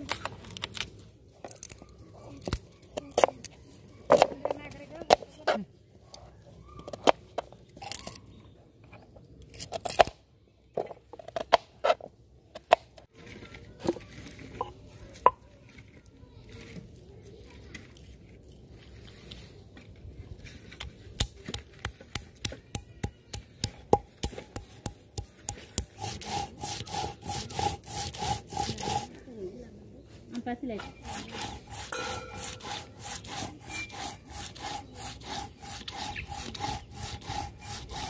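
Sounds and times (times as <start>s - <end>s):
stone roller grinding on slab: 25.5s - 29.2s, 30.7s - 38.0s.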